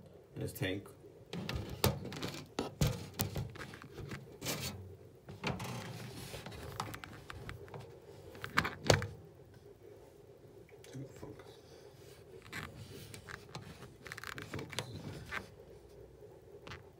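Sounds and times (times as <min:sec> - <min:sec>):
plastic containers clicking and knocking: 0:01.3 - 0:04.6.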